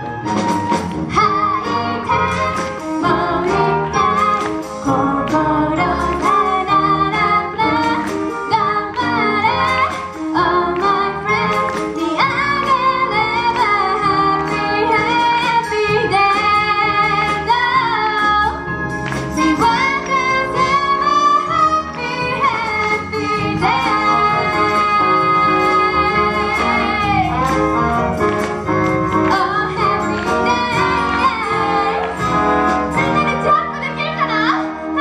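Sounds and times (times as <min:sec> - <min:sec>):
woman singing pop song: 0:01.1 - 0:27.6, 0:29.1 - 0:35.0.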